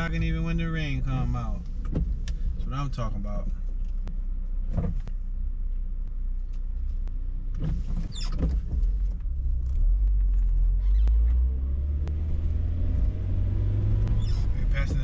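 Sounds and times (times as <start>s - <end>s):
engine and road rumble: 0.0s - 15.0s
short squeak: 7.9s - 8.5s, 10.7s - 11.4s, 14.2s - 14.6s.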